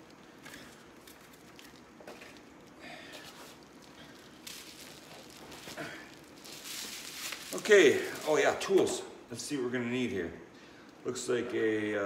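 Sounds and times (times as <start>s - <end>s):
faint rustling and handling: 0.0s - 9.1s.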